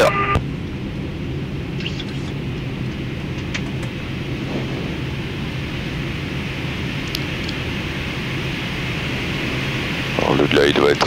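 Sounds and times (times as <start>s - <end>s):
low even hum: 0.0s - 11.0s
rush of air: 3.8s - 10.1s.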